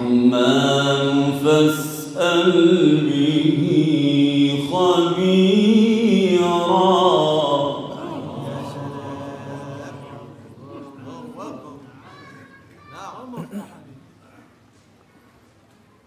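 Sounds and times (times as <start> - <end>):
man chanting melodically: 0.0 - 11.9.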